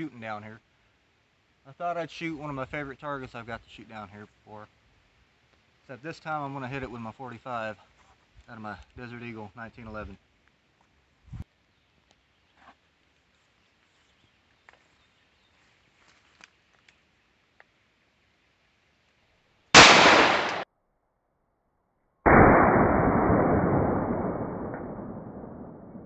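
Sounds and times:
pistol shot: 0:19.8 - 0:20.7, 0:22.3 - 0:26.0
slowed-down deep gunshot: 0:19.8 - 0:20.7, 0:22.3 - 0:26.0.

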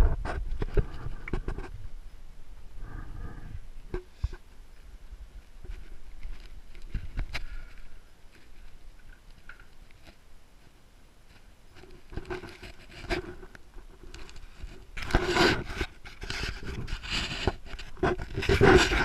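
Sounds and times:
fur rubbing against camera: 0:14.2 - 0:19.0.

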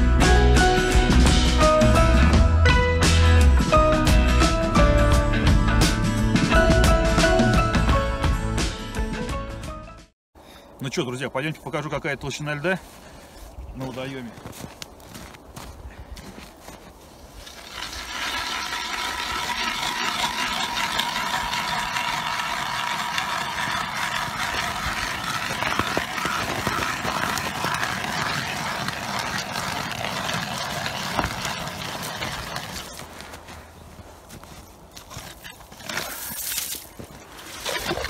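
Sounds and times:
ice auger scraping through ice: 0:17.2 - 0:33.6, 0:34.3 - 0:38.0.

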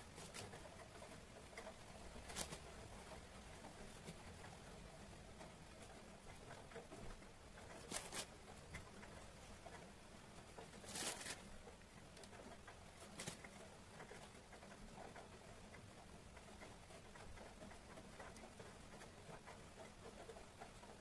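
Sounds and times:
soft rustles: 0:00.0 - 0:15.3.

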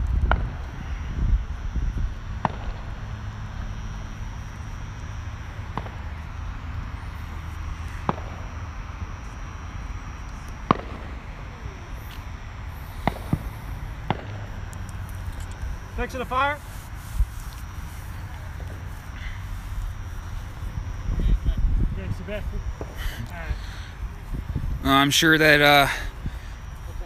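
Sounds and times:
wind rumble: 0:00.0 - 0:27.0
distant firework pops: 0:00.1 - 0:00.7, 0:02.3 - 0:03.1, 0:05.7 - 0:06.1, 0:08.0 - 0:08.6, 0:10.6 - 0:11.4, 0:13.0 - 0:14.8.

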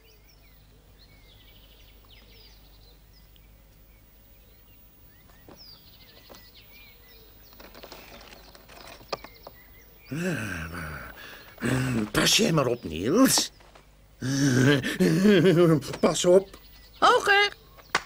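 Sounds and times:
small birds chirping: 0:00.0 - 0:18.0
person speaking: 0:10.1 - 0:13.6, 0:14.2 - 0:17.6.

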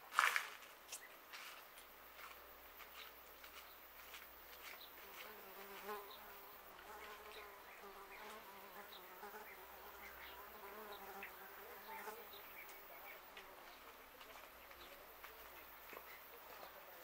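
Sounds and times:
flying insect buzzing: 0:05.0 - 0:12.6.

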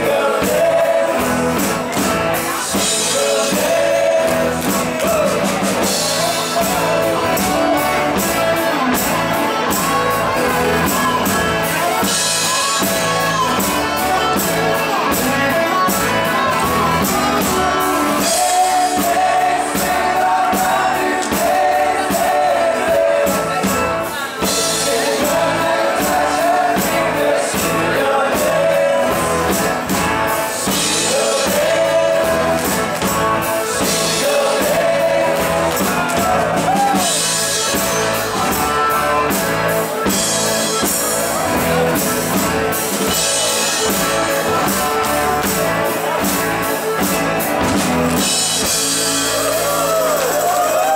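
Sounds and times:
male lead vocals: 0:00.0 - 0:09.0, 0:15.2 - 0:38.0
acoustic guitar: 0:00.0 - 0:50.9
drum kit beat: 0:00.0 - 0:50.9
electric bass: 0:00.0 - 0:50.9.

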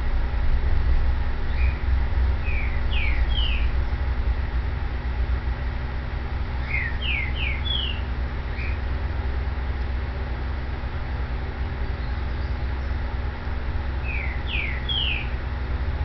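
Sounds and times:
low rumble: 0:00.0 - 0:16.0
bird chirping: 0:01.5 - 0:01.8, 0:02.4 - 0:04.0, 0:06.5 - 0:08.9, 0:11.8 - 0:13.1, 0:14.0 - 0:15.4.

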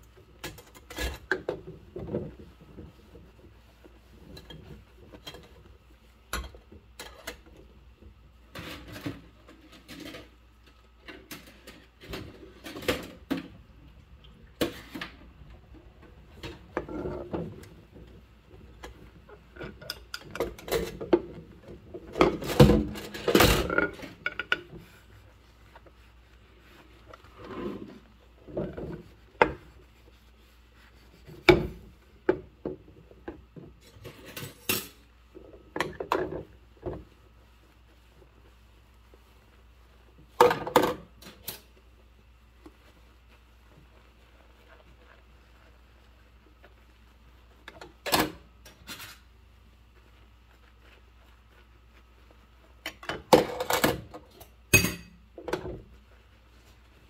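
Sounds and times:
scrubbing dishes: 0:00.0 - 0:41.9.

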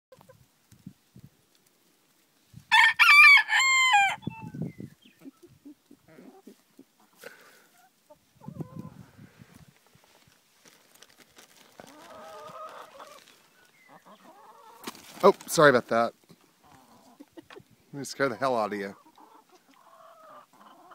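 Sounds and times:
rooster crowing: 0:02.7 - 0:04.2
chicken clucking: 0:05.1 - 0:09.0, 0:11.8 - 0:15.0, 0:16.6 - 0:20.9.

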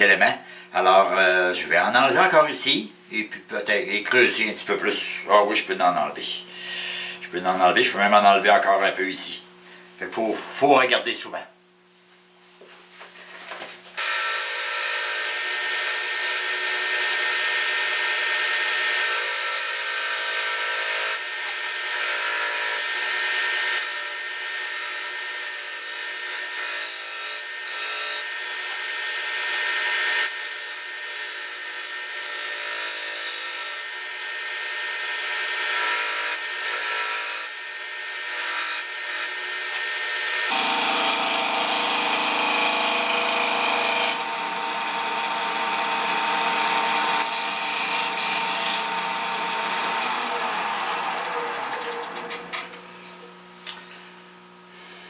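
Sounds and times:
lathe tool cutting wood: 0:14.0 - 0:53.0
wood lathe humming: 0:14.0 - 0:53.2.

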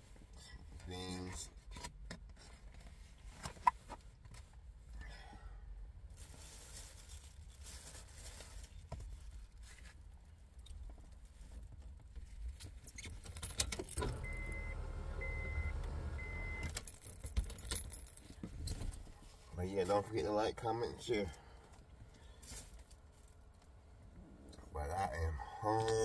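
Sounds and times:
rustling and clicking in car: 0:06.8 - 0:20.1
car warning chime beeps: 0:14.0 - 0:16.8.

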